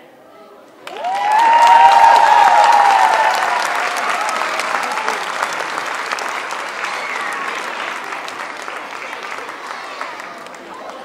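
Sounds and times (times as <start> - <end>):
audience clapping: 0.8 - 11.0
cheers and whoops: 0.9 - 7.9.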